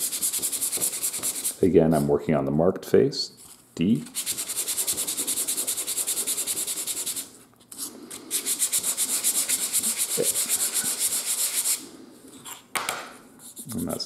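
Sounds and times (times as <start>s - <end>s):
sanding sponge on plywood: 0.0s - 1.6s, 4.1s - 7.3s, 8.3s - 11.8s.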